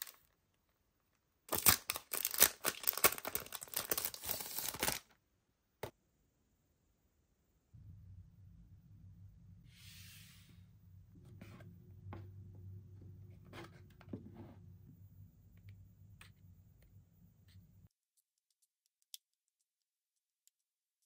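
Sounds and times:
paper rustling: 0:01.5 - 0:05.1
low steady hum: 0:05.4 - 0:17.9.

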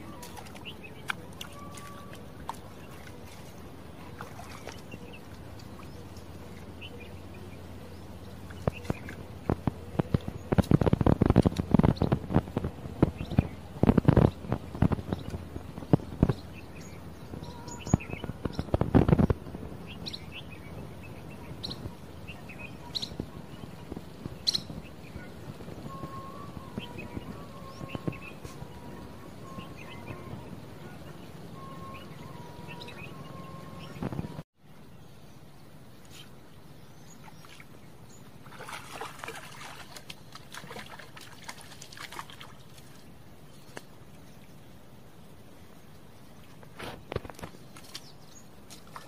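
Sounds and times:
fish splashing in water: 0:00.0 - 0:07.1, 0:38.4 - 0:43.1
birds chirping: 0:00.0 - 0:44.6
steady background hiss: 0:00.0 - 0:49.0.

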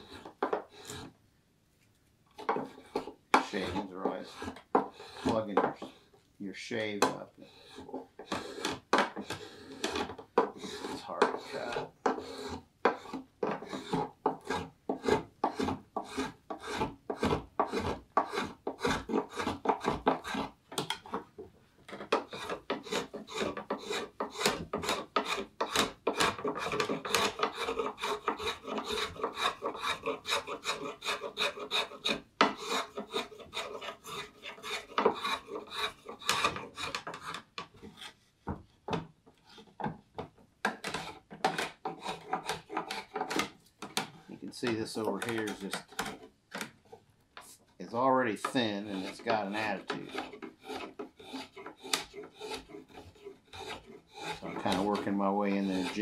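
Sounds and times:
spokeshave shaving wood: 0:00.0 - 0:01.1, 0:02.4 - 0:06.1, 0:06.8 - 0:38.3, 0:40.7 - 0:56.0.

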